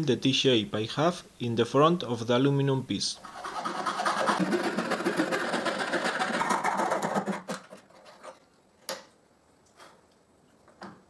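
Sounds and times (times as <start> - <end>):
fret saw cutting plywood: 3.3 - 7.8.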